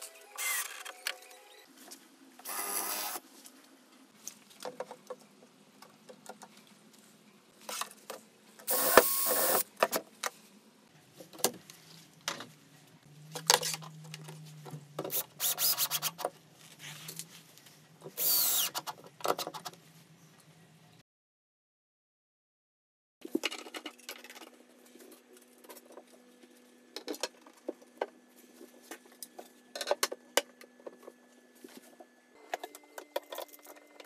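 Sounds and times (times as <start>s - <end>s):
cordless drill driving a screw: 2.5s - 3.2s, 8.7s - 9.6s, 18.2s - 18.8s.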